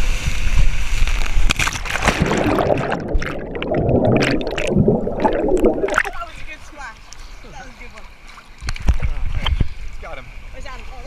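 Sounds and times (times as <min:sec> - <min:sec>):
splash into pool: 0:01.0 - 0:06.2
muffled underwater bubbling: 0:01.9 - 0:06.2.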